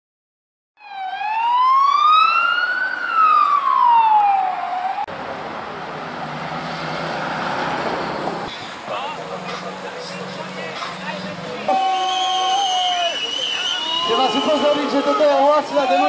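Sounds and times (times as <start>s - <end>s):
police siren wailing: 0.8s - 5.1s, 11.7s - 16.0s
street noise: 1.0s - 16.0s.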